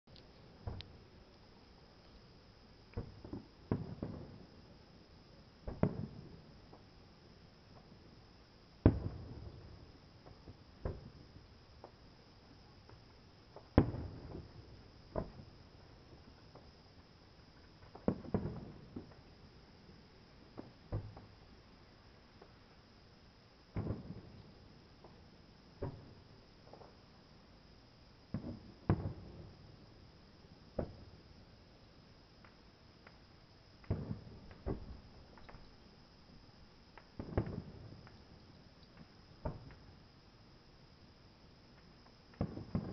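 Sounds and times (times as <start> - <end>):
distant fireworks bursting: 0.6 - 1.1, 2.9 - 4.8, 5.6 - 7.0, 8.8 - 12.0, 12.8 - 21.6, 23.6 - 27.1, 28.2 - 31.6, 32.4 - 35.8, 36.8 - 40.0, 41.7 - 42.9
distant firework shells booming: 8.8 - 11.2, 17.8 - 19.2, 23.7 - 24.4, 33.8 - 35.6, 37.2 - 38.1.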